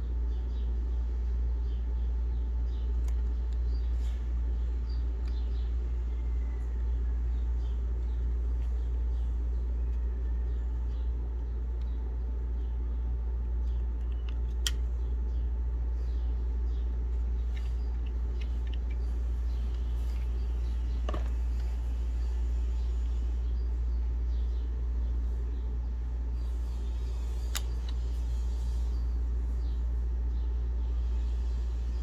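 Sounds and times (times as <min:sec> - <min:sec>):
low background rumble: 0:00.0 - 0:32.0
sharp click: 0:14.0 - 0:14.9, 0:27.4 - 0:28.0.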